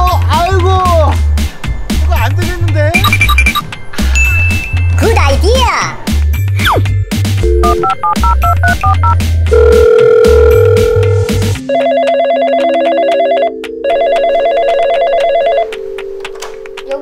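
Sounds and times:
background music: 0.0 - 17.0
phone keypad beeps: 3.0 - 3.6, 7.5 - 15.6
steady dial tone: 7.4 - 15.7
toy telephone ringing: 11.7 - 15.6.

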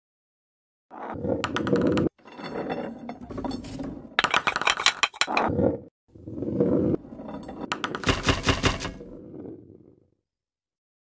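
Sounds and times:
ball rolling along tracks: 1.0 - 10.1
mechanism clinks and rattles: 3.3 - 5.5.

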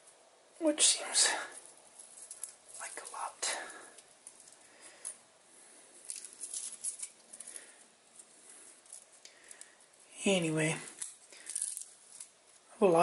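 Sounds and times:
metal blades clicking and rustling: 6.0 - 7.7.

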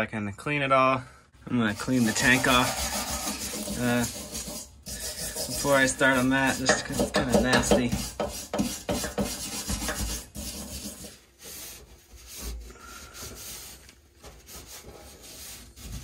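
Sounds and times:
rag rubbing metal tank: 1.5 - 16.0
hand scraper rasping on metal: 1.7 - 11.2.

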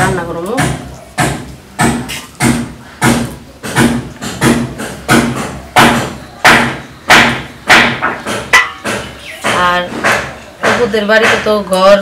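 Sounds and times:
hammering on tin roofing: 0.0 - 12.0.

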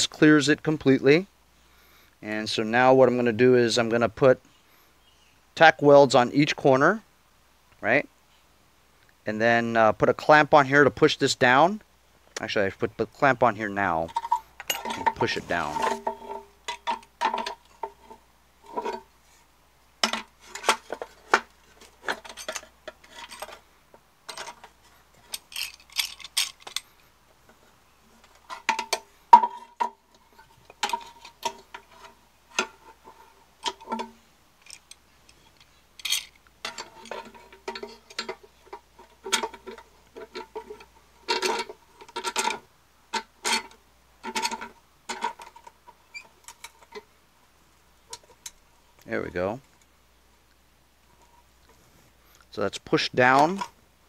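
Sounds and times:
metallic clinks and scrapes: 13.8 - 19.4, 20.0 - 23.6, 24.3 - 27.0, 28.2 - 47.1.

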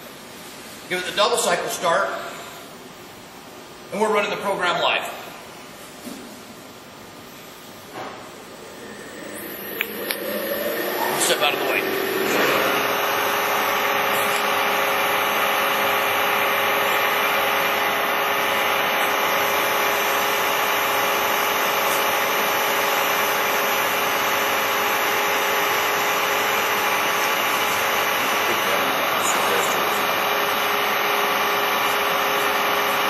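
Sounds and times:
milling machine spindle whirring: 7.8 - 33.0.

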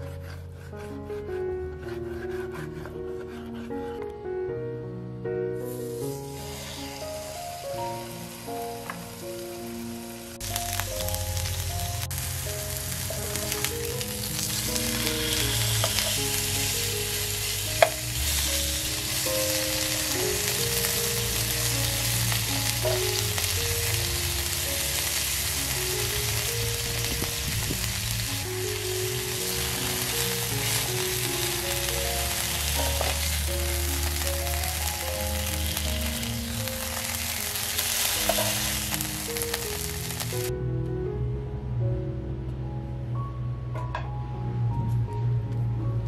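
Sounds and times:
soft background music: 0.0 - 46.0
steak sizzling in frying pan: 5.7 - 40.5.

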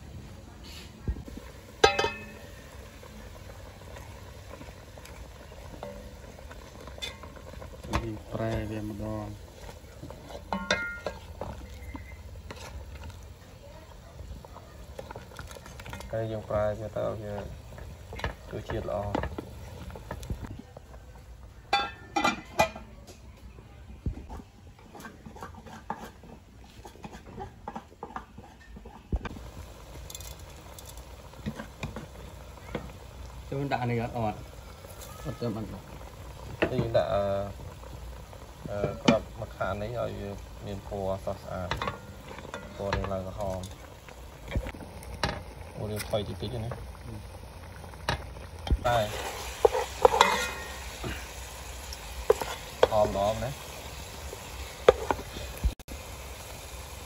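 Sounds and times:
metal pot lid clanking: 1.7 - 2.8, 5.8 - 8.8, 10.1 - 11.9, 21.7 - 22.9, 41.6 - 43.8, 49.2 - 51.2
ladle scraping in pot: 9.4 - 13.3, 24.4 - 29.1, 48.1 - 53.2, 54.2 - 55.6.

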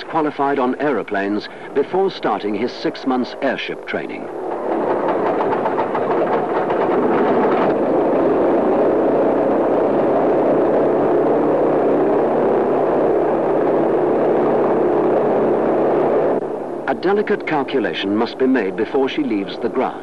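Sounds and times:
propeller engine drone: 0.0 - 20.0
rapid flutter: 4.4 - 16.5.

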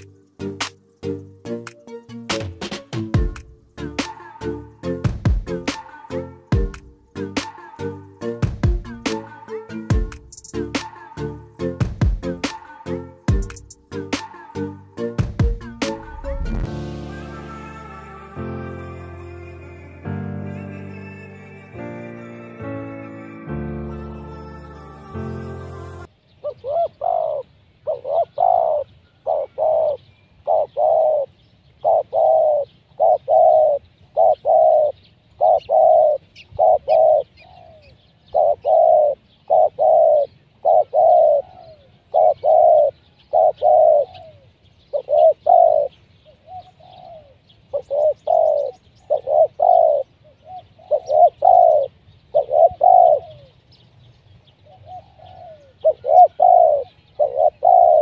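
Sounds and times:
dove cooing: 26.4 - 53.6, 54.7 - 58.0.

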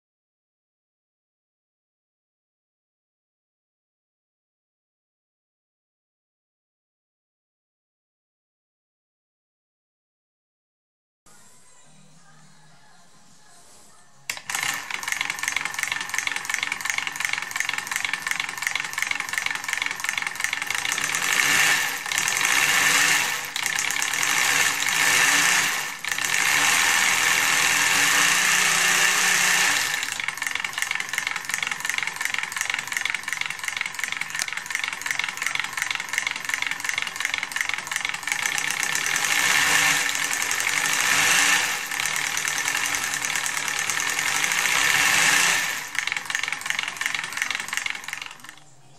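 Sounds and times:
solenoids clattering rapidly: 14.3 - 48.6.

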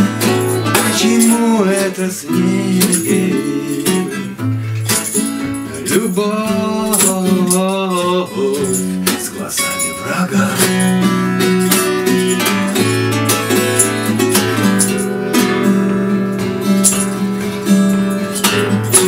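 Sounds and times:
man singing: 0.0 - 11.6
acoustic guitars strumming: 0.0 - 19.0.

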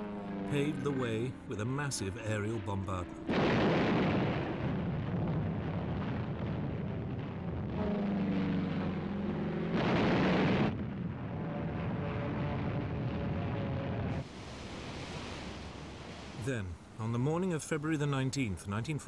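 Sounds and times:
bombs exploding: 3.3 - 8.1, 9.8 - 11.1.

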